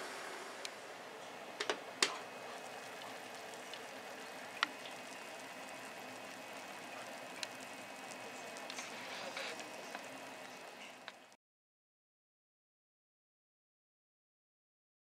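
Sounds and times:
fish sizzling in a frying pan: 0:02.2 - 0:11.3.

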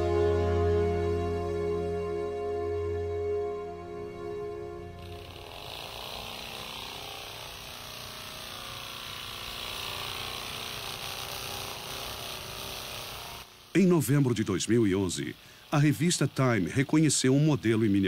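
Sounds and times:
background music: 0:00.0 - 0:05.6
drone whirring: 0:00.0 - 0:18.0.

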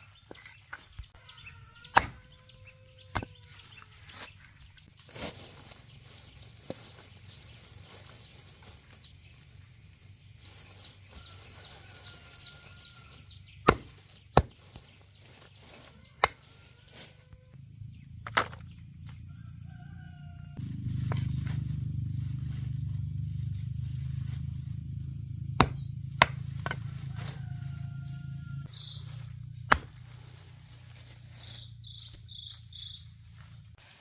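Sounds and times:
sharp knocks: 0:25.6 - 0:26.8.

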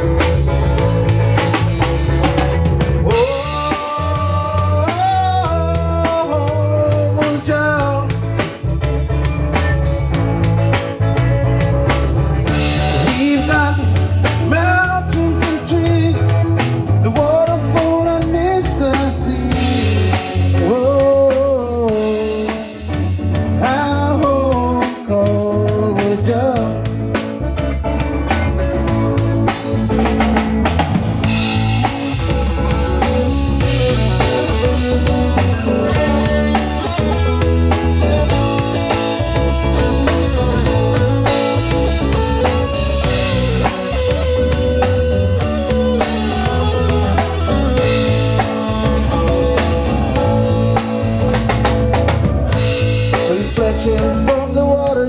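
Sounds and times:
bass and drums: 0:00.0 - 0:55.0
lead electric guitar bending: 0:00.0 - 0:55.0.

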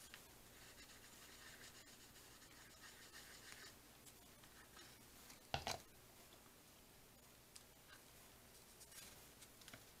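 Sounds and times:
paper rubbing: 0:00.5 - 0:03.7.

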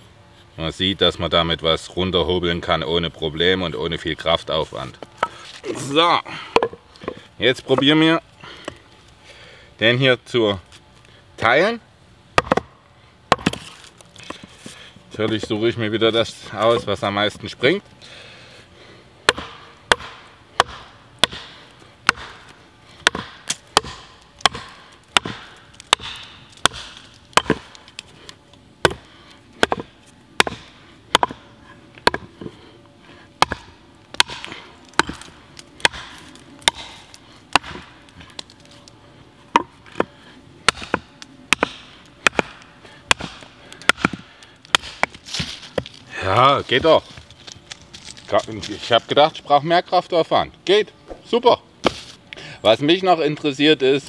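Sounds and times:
axe chopping wood: 0:06.6 - 0:07.2, 0:12.4 - 0:14.5, 0:19.2 - 0:28.0, 0:28.8 - 0:32.6, 0:33.4 - 0:38.5, 0:39.5 - 0:45.9, 0:51.8 - 0:52.1.

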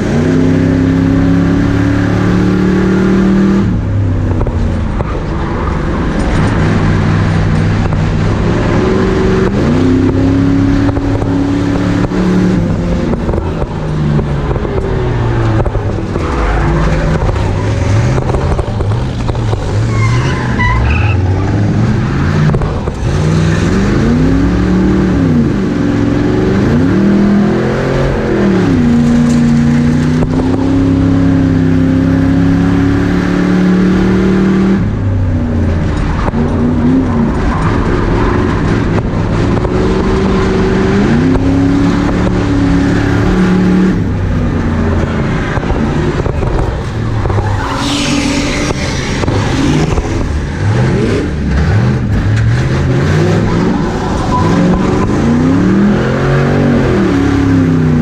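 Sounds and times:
race car engine revving: 0:00.0 - 0:58.0
tyres squealing: 0:19.7 - 0:21.5, 0:46.8 - 0:50.4.

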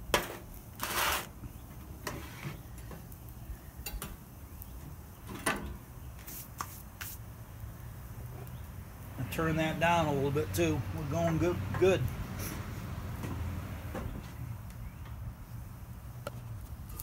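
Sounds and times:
faint background hiss: 0:00.2 - 0:17.0.

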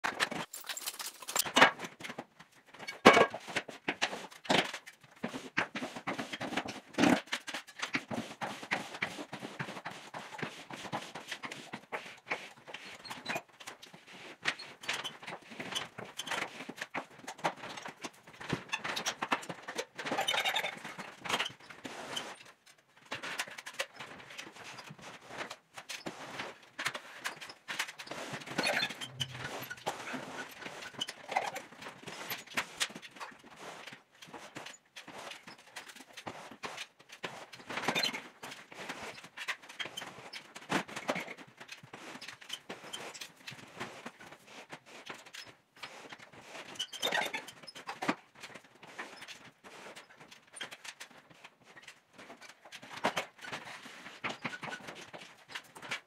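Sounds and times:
drywall knife scraping compound: 0:26.0 - 0:32.8.

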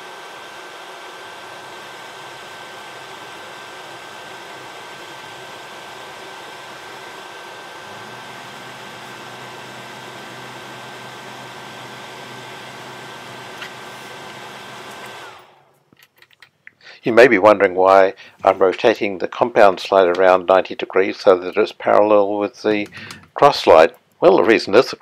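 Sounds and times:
metal lathe whining: 0:00.0 - 0:15.8.

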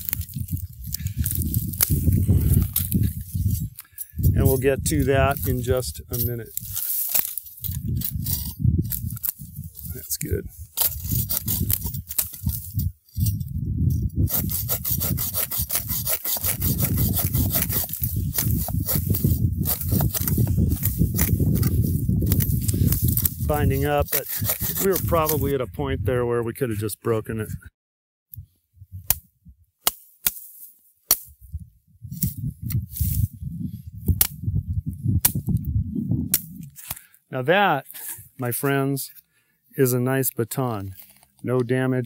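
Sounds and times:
hand saw cutting wood: 0:10.8 - 0:12.4, 0:14.3 - 0:25.5
knife chopping wood: 0:14.3 - 0:25.4.

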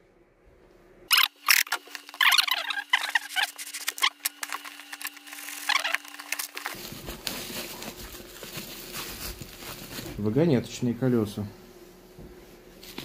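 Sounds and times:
faint steady hum: 0:00.0 - 0:13.0
package being cut and unwrapped: 0:01.1 - 0:10.2.

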